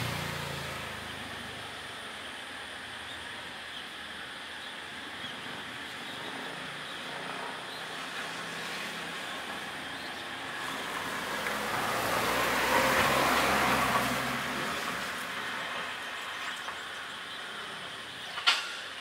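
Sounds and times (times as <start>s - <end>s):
vehicle passing: 0.0s - 2.1s, 5.6s - 18.0s.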